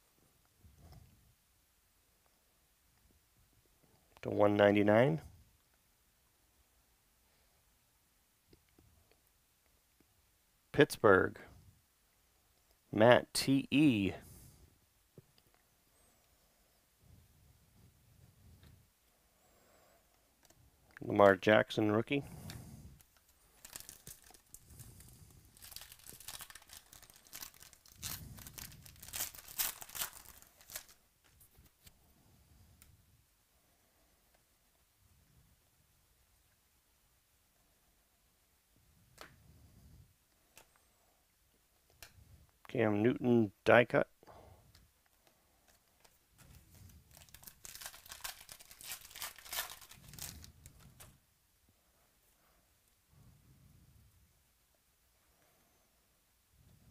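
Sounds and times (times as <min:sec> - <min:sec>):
wrapper crinkling: 0:23.1 - 0:31.0, 0:45.7 - 0:51.2
foil card pack tearing: 0:25.6 - 0:31.0, 0:47.1 - 0:50.5.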